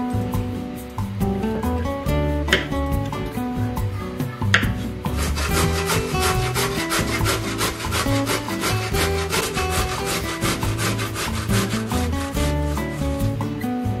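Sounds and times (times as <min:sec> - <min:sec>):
music playing: 0:00.0 - 0:14.0
grating on metal grater: 0:05.1 - 0:13.3.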